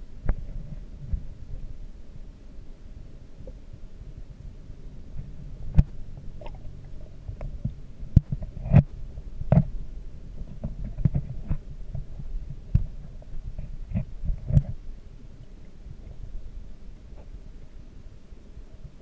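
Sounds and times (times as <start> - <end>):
underwater aquarium hum: 0.0 - 19.0
sharp clicks and knocks underwater: 0.2 - 1.6, 5.2 - 14.8.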